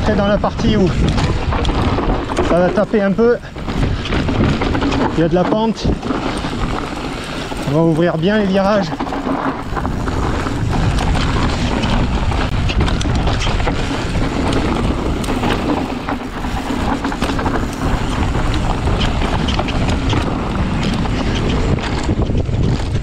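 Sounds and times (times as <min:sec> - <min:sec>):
bike rattling: 0:00.0 - 0:23.0
tyres on dirt and rock: 0:00.0 - 0:23.0
wind rumbling on microphone: 0:00.0 - 0:23.0.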